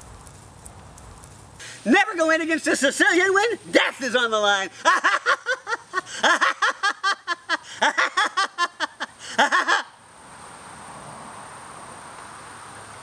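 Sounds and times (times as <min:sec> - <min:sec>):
faint hiss with high tone: 0:01.2 - 0:13.0
man laughing maniacally: 0:01.9 - 0:10.0.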